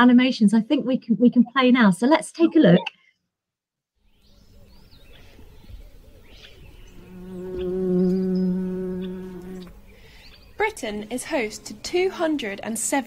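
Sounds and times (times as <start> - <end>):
bee buzzing: 6.6 - 12.4.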